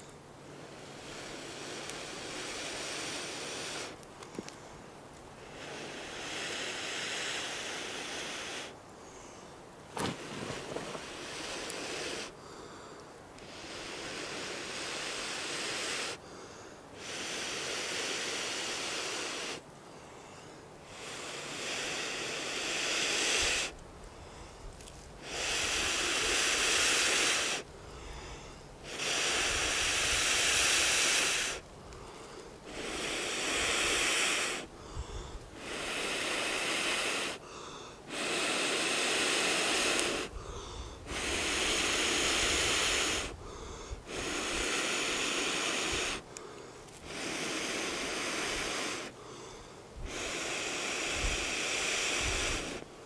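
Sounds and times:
person blowing air hard: 38.1s - 46.2s, 47.0s - 49.1s, 50.0s - 52.8s.

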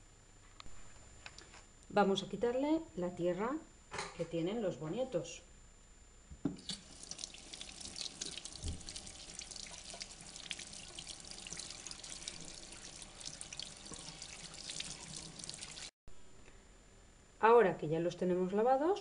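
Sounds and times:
tap water splashing into sink: 6.5s - 15.9s.

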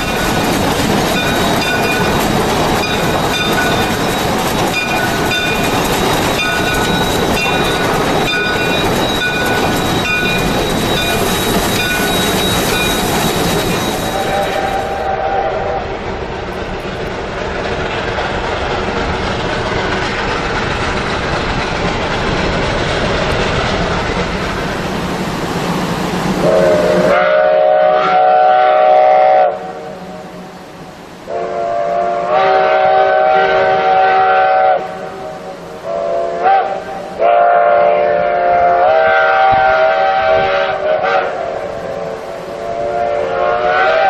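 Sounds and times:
train rushing: 0.0s - 44.0s
steam locomotive chime whistle: 1.1s - 16.0s, 26.4s - 44.0s.

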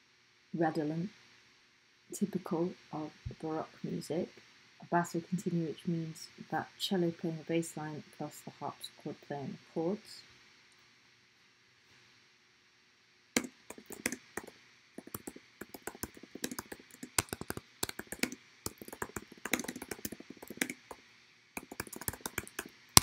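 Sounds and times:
typing on computer keyboard: 13.4s - 21.0s, 21.6s - 22.7s.

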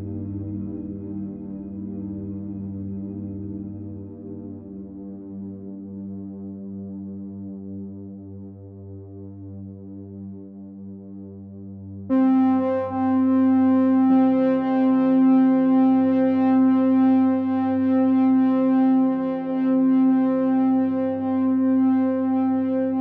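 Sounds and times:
sustained synthesizer chord: 12.1s - 23.0s.

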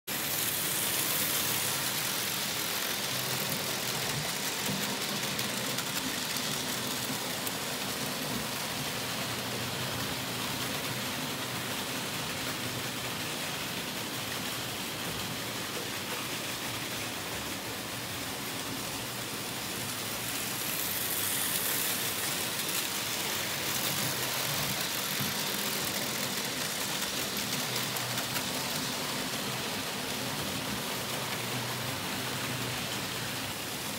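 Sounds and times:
model trains rattling on metal track: 0.1s - 33.9s.

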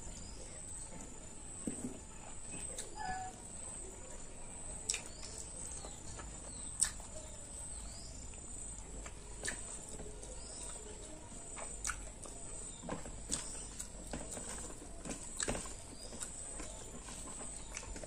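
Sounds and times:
person chewing with mouth clicks: 4.8s - 5.4s, 6.6s - 7.2s, 8.3s - 12.4s, 13.3s - 14.7s, 15.4s - 16.7s.

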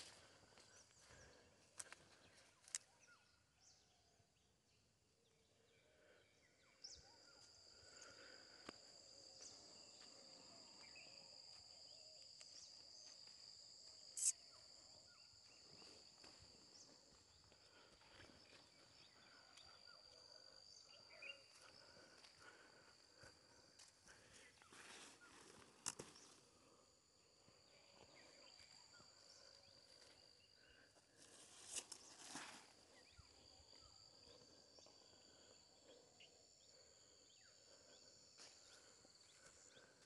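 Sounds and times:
insect chirring: 6.7s - 24.4s, 25.7s - 40.0s.

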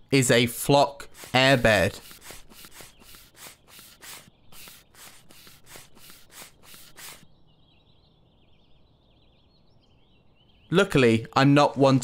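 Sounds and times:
rhythmic rustling strokes: 1.0s - 7.2s
faint bird chirps: 1.1s - 11.4s.

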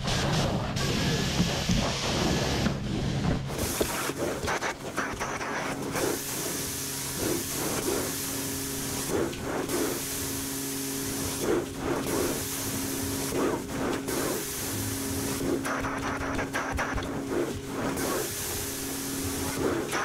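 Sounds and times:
machine hum: 0.0s - 20.0s
suction and spray hiss: 0.0s - 20.0s.

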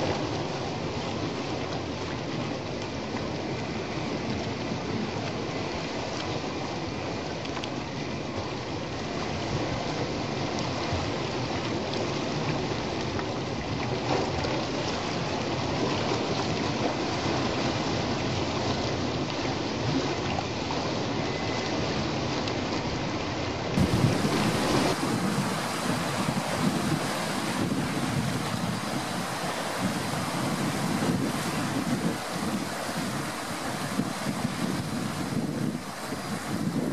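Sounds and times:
waves breaking over rocks: 23.8s - 36.9s
wind rumbling on microphone: 23.8s - 36.9s.

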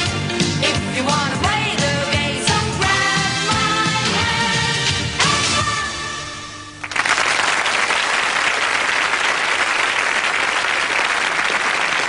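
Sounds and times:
audience applause: 6.8s - 12.0s.

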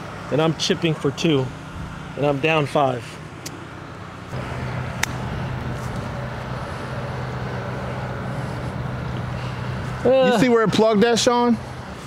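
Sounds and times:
motor vehicle humming: 0.0s - 12.0s
sharp click: 5.0s - 5.2s.

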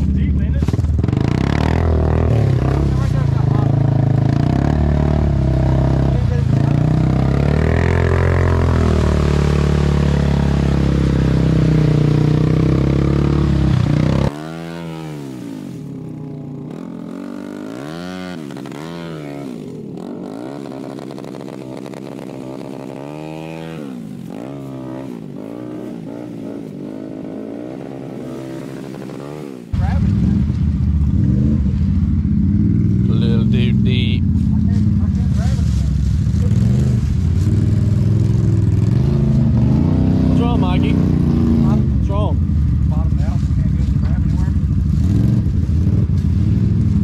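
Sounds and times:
four-wheeler engine revving: 0.0s - 47.0s
loud engine running steadily: 29.7s - 47.0s.

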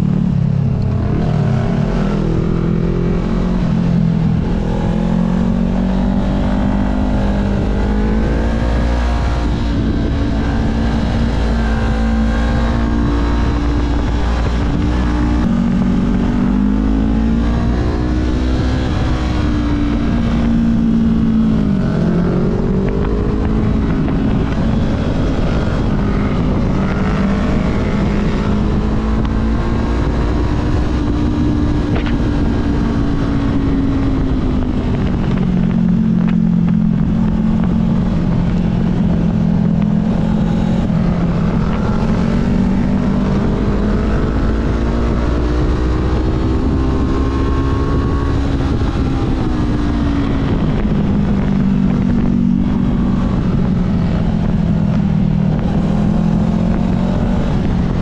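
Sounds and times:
motorcycle engine revving: 0.0s - 58.0s
wind rush on microphone: 0.0s - 58.0s.

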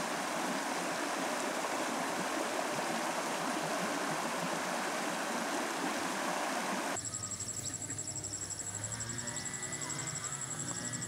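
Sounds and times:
water rushing over stones: 0.0s - 7.0s.

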